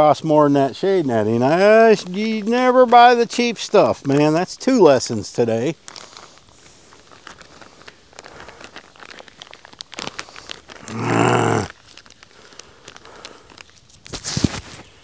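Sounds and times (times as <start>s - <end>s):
plastic bag crinkling and tearing: 1.6s - 15.0s
low grunt: 10.8s - 11.7s.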